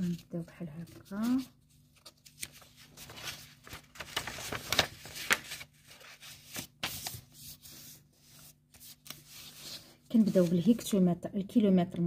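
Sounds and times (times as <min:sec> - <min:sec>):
paper rustling and scraping: 0:00.8 - 0:10.9.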